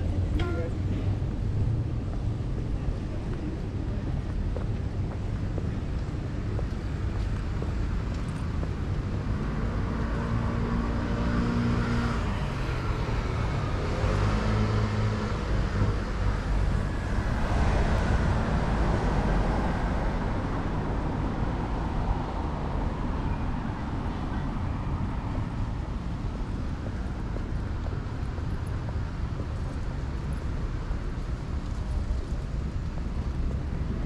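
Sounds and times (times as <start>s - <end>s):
cars driving past: 6.9s - 34.0s.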